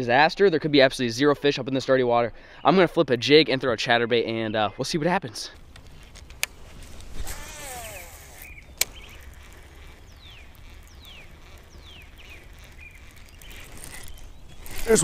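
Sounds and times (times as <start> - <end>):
reel winding: 5.8 - 15.0
fishing reel click: 7.2 - 15.0
bird whistling: 7.6 - 9.3.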